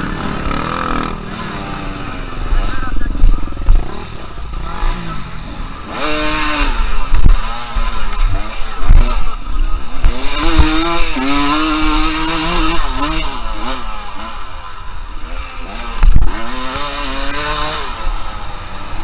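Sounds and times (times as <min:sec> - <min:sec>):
dirt bike engine revving: 0:00.0 - 0:19.0.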